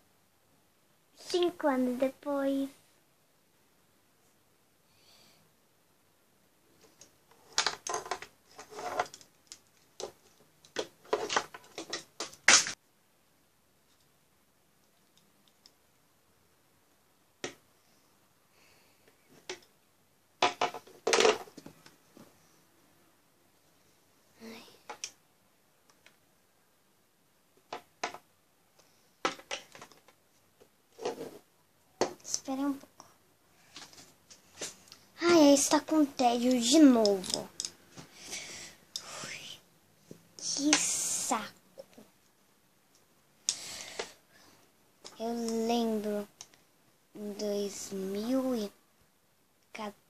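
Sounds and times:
toys knocking and rustling: 6.8s - 12.8s, 20.4s - 22.3s, 24.8s - 25.2s, 27.6s - 28.3s, 29.2s - 32.7s, 33.7s - 38.1s, 40.0s - 41.0s.

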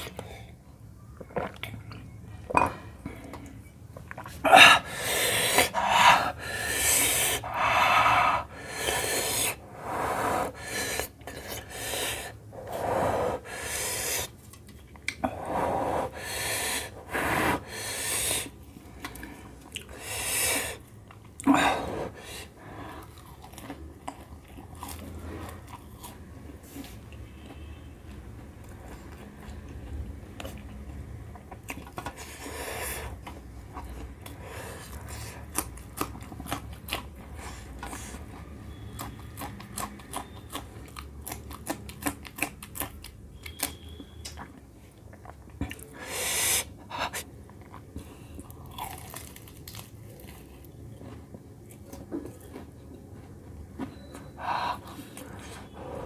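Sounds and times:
man breathing hard: 4.6s - 14.2s
chewing: 22.9s - 27.7s, 28.6s - 45.9s, 47.1s - 55.8s.

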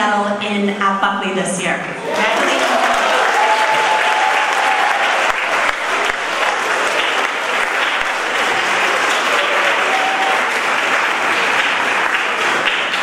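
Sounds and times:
audience applauding: 2.0s - 13.0s.

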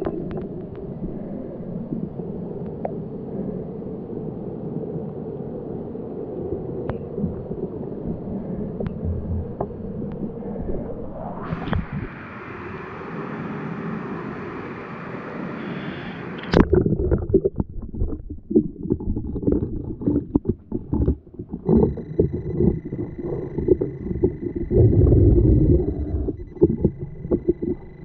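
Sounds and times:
muffled underwater rumble: 0.0s - 13.2s, 15.6s - 28.0s
underwater knocks: 6.9s - 7.6s, 8.8s - 9.8s, 16.4s - 28.0s
bubbling: 16.4s - 28.0s
steady high tone: 21.7s - 28.0s.

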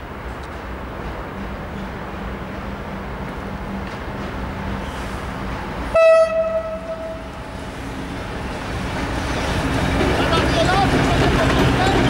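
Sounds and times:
diesel locomotive rumbling: 0.0s - 12.0s
locomotive horn blast: 5.9s - 7.6s.

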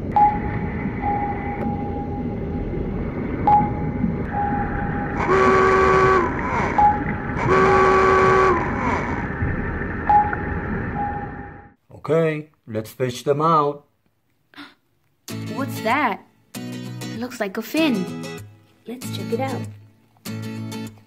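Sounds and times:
steady rumbling wash: 0.0s - 11.8s
pinging tone with click: 0.1s - 2.0s
low horn-like calls: 5.2s - 9.3s.

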